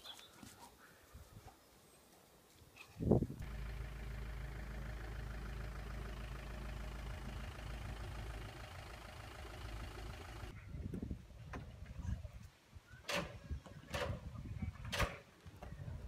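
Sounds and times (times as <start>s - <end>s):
truck engine idling: 3.4s - 10.5s.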